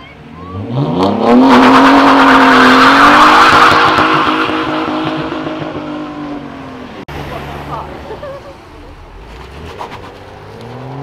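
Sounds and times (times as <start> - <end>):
car engine revving high: 0.4 - 8.2
tyres spinning and screeching: 1.3 - 11.0.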